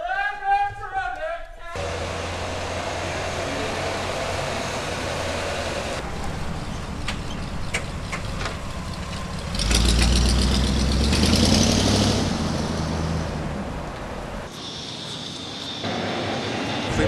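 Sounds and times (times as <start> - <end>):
truck engine idling and revving: 1.8 - 17.0.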